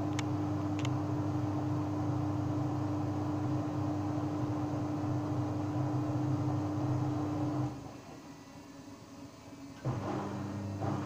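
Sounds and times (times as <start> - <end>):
washing machine spinning: 0.0 - 8.3, 9.8 - 11.0.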